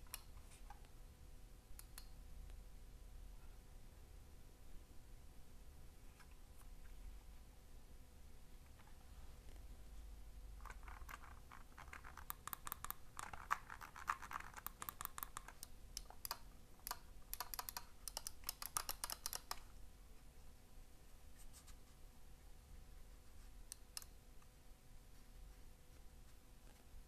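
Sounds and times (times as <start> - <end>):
mouse buttons clicking: 1.8 - 2.2, 10.6 - 19.7
mouse scratching: 10.6 - 19.6.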